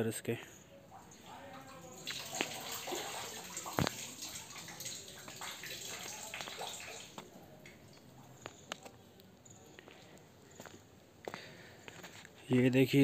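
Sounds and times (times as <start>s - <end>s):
water pouring and splashing: 0.9s - 8.2s
water dripping: 0.9s - 10.3s.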